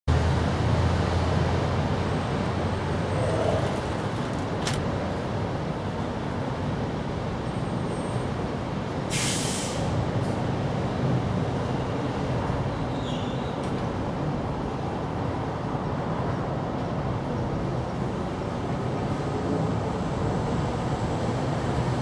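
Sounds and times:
brief hiss: 9.1 - 9.9.

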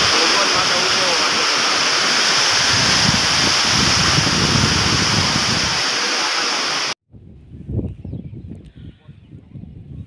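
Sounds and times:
rushing water: 0.0 - 7.0
wind buffeting microphone: 2.3 - 5.9, 7.1 - 10.0.

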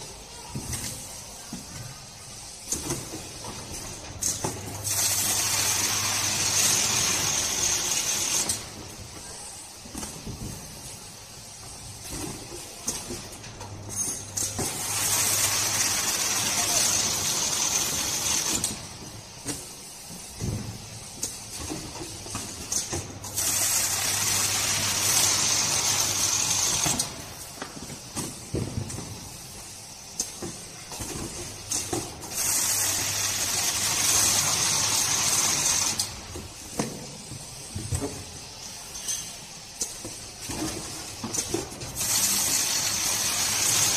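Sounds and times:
carton sealer hissing: 4.6 - 13.2, 14.6 - 22.6, 23.3 - 43.9
cartons knocking on conveyor: 14.5 - 29.6.

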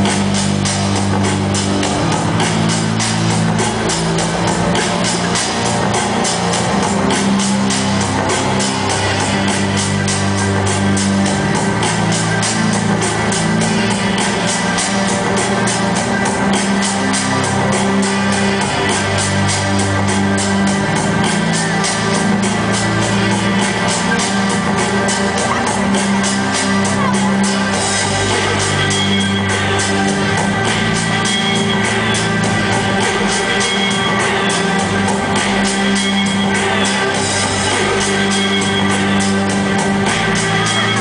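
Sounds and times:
loud music with driving beat: 0.0 - 41.0.

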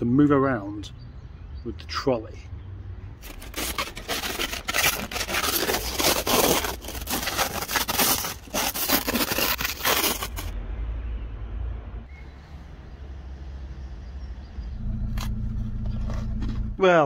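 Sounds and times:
trolley crunching over gravel: 3.2 - 10.5.

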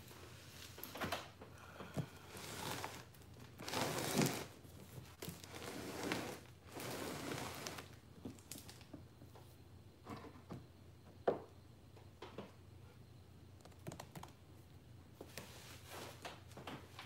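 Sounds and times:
box scraping across wooden table: 2.3 - 4.6, 5.4 - 8.0.

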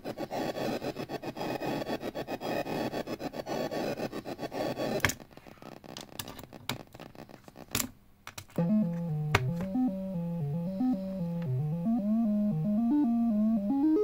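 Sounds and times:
synth tone hopping between pitches: 8.6 - 14.0.

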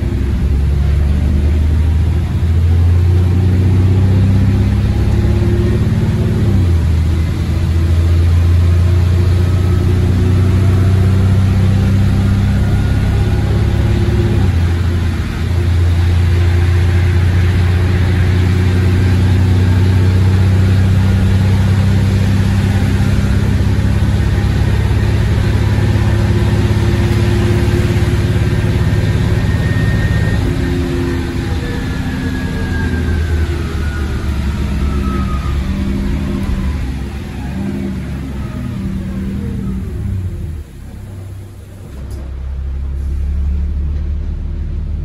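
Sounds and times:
bus diesel engine droning: 0.0 - 45.0.

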